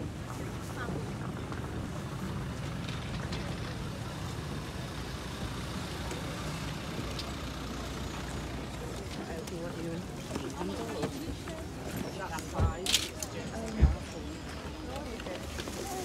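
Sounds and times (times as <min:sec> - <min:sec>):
low open-air rumble: 0:00.0 - 0:12.8
murmur of voices: 0:03.1 - 0:16.0.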